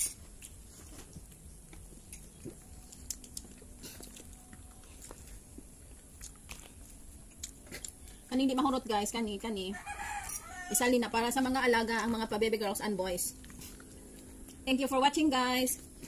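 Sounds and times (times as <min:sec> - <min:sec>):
chewing and mouth noises: 0:00.0 - 0:08.3, 0:13.3 - 0:14.7.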